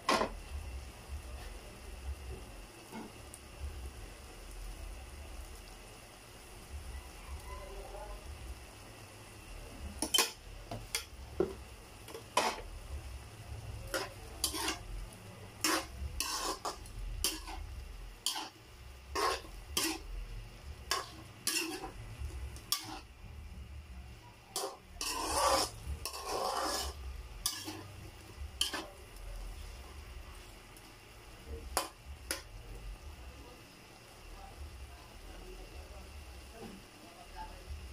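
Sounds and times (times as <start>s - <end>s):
metal ladle scraping a wok: 10.0s - 11.1s, 12.1s - 12.7s, 13.9s - 14.9s, 15.5s - 20.1s, 20.9s - 22.0s, 22.6s - 23.1s, 24.5s - 29.0s.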